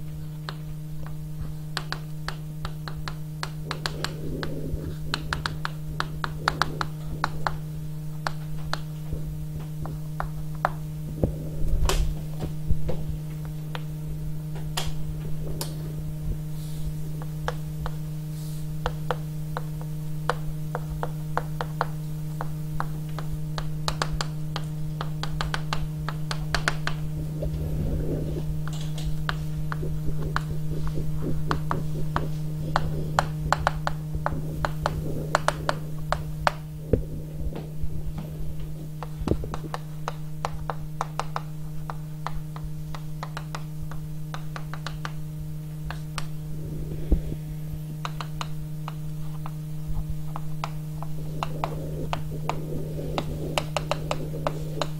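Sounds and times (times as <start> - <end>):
small clicks and taps: 0.0 - 13.9, 18.8 - 27.6, 28.6 - 45.2, 48.0 - 54.9
electrical mains hum: 0.0 - 54.9.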